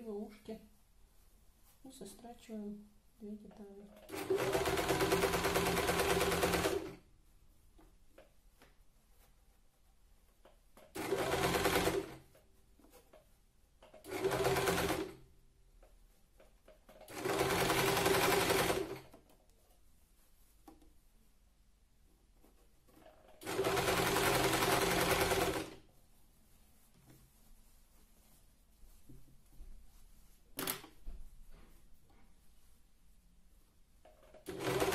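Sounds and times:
electric sewing machine stitching: 0:04.1 - 0:07.0, 0:11.0 - 0:12.2, 0:14.0 - 0:15.2, 0:17.0 - 0:19.1, 0:23.3 - 0:25.8, 0:34.4 - 0:34.9.

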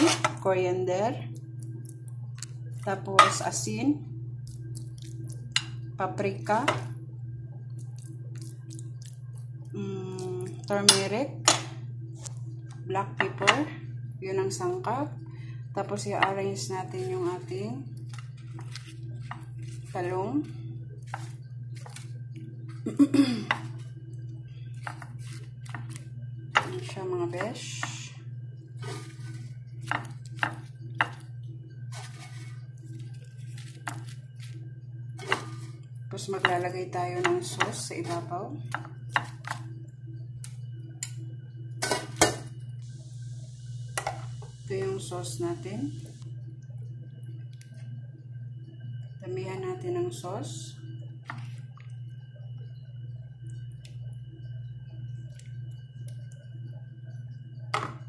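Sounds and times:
steady low hum: 0:00.0 - 0:58.0
sauce squishing: 0:04.4 - 0:05.6, 0:07.6 - 0:09.6.

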